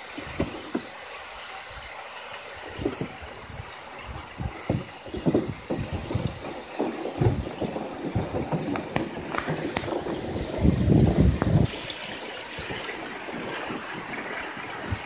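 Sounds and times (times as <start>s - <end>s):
low water rush: 0.0s - 15.0s
water sloshing against a kayak: 0.0s - 15.0s.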